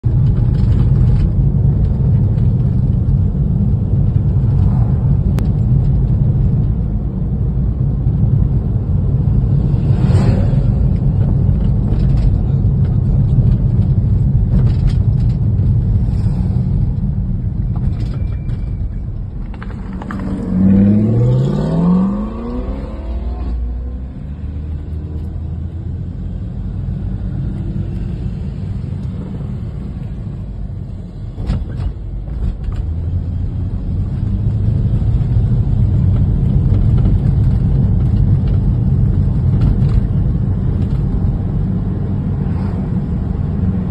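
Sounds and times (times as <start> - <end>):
tyre and engine rumble in car: 0.0 - 43.9
engine speeding up: 9.1 - 12.3, 19.6 - 29.8.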